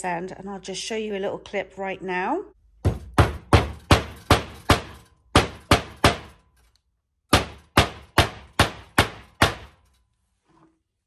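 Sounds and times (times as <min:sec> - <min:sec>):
hammer driving nail into board: 0:02.8 - 0:06.4, 0:07.3 - 0:09.8.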